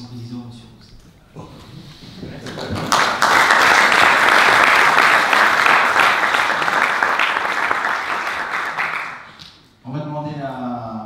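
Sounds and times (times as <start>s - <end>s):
audience applauding: 2.4s - 9.4s.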